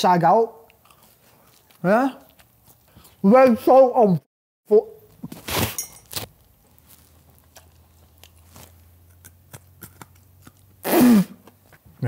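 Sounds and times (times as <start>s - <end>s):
person chewing food: 0.6s - 3.2s, 5.1s - 10.8s, 11.4s - 12.0s.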